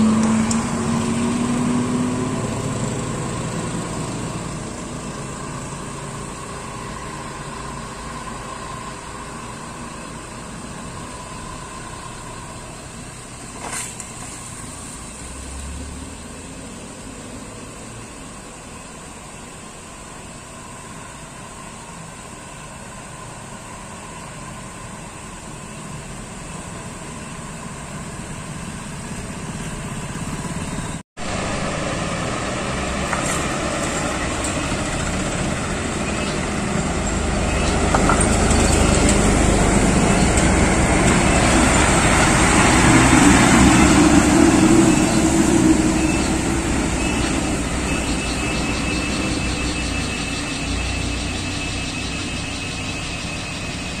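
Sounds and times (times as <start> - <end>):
truck engines passing: 0.0 - 54.0.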